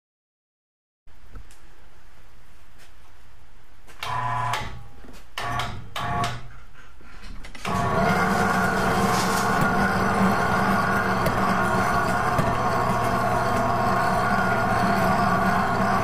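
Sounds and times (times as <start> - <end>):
electric hoist motor humming: 4.0 - 6.4, 7.6 - 16.0.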